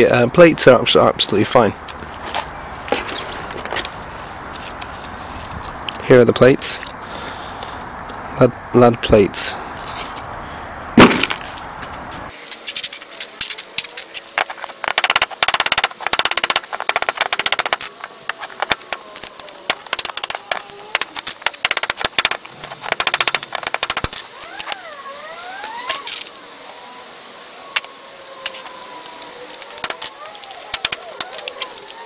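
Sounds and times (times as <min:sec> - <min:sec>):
debris scraping on concrete: 0:12.3 - 0:26.4
battery parts crackling and rattling: 0:12.4 - 0:26.6, 0:27.7 - 0:32.0.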